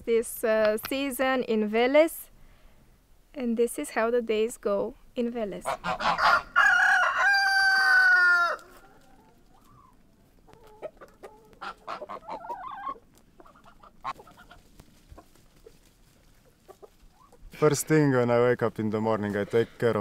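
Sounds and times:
hens clucking: 5.5 - 18.3
rooster crowing: 6.0 - 9.0.

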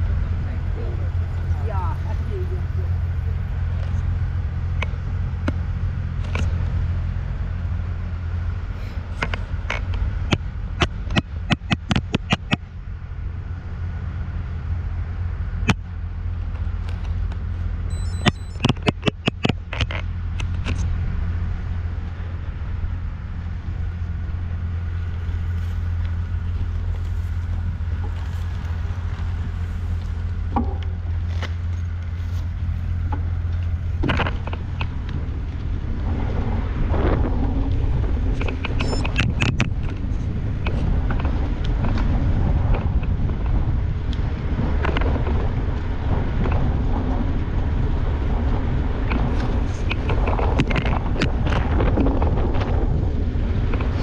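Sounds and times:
bike tyre noise: 0.0 - 54.0
wind rumble on microphone: 0.0 - 54.0
sharp clicks and knocks: 9.2 - 12.6, 18.2 - 20.9, 33.1 - 35.2, 38.4 - 40.0.

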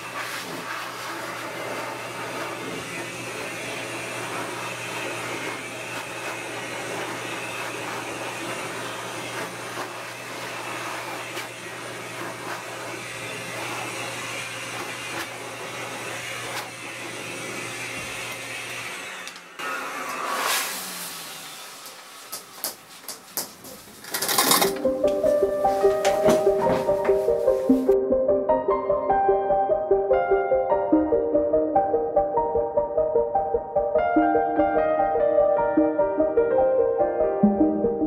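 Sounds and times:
pet dryer blowing: 0.0 - 22.5.

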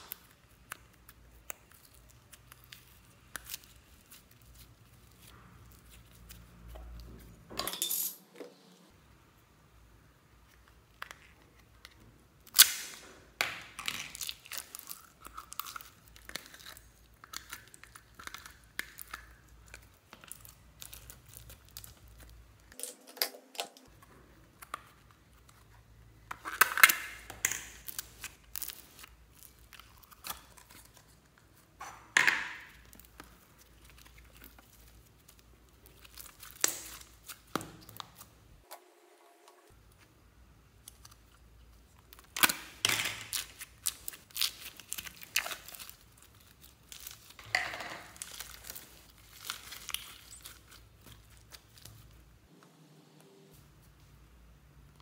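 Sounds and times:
slime crackling and popping: 12.4 - 13.1, 13.7 - 22.8, 32.7 - 38.3, 40.8 - 52.1.

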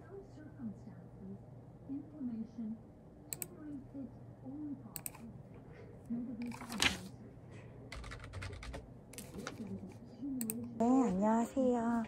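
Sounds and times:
paper rustle: 6.4 - 7.1, 9.2 - 9.8
keyboard typing: 7.9 - 9.8.

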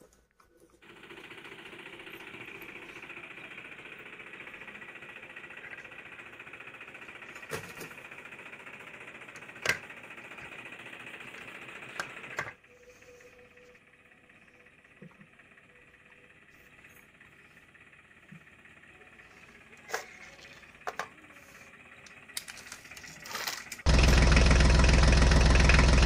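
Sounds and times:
toy motor rattling buzz: 16.5 - 23.9.

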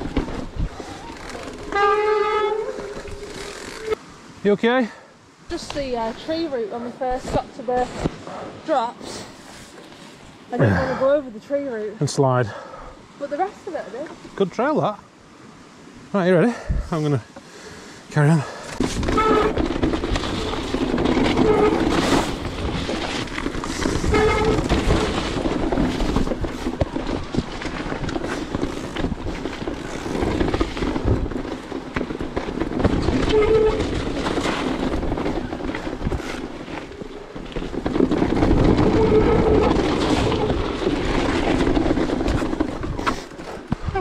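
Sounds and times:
bike rattling: 0.0 - 4.0, 18.2 - 44.0
tyres crunching over stones: 18.8 - 44.0.

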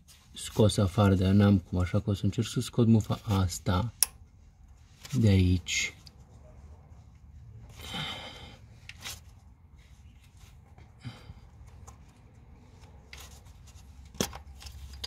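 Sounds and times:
hands rustling wiring: 8.8 - 15.0.

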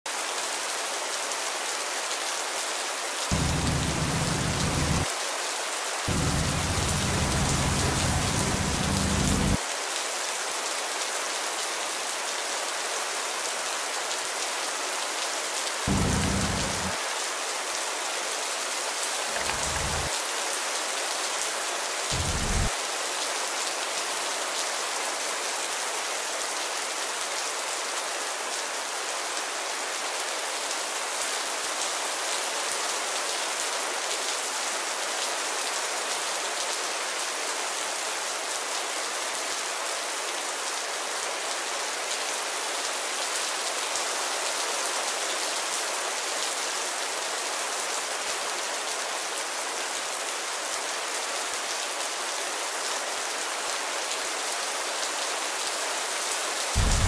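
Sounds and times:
rain falling: 0.1 - 57.0
low rumble: 3.3 - 5.1, 6.1 - 9.6, 15.9 - 17.0, 19.4 - 20.1, 22.1 - 22.7, 56.8 - 57.0.

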